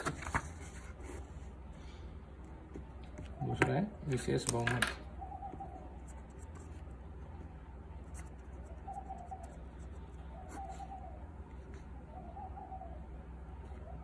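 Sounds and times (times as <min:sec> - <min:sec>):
steady low hum: 0:00.0 - 0:14.0
marker scratching on paper: 0:06.0 - 0:06.9, 0:08.1 - 0:09.6.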